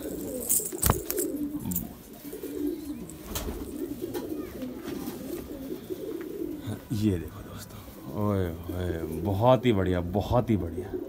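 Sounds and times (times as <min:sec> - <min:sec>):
sharp clicks and rustles: 0:00.0 - 0:02.0
pigeons cooing: 0:00.0 - 0:11.0.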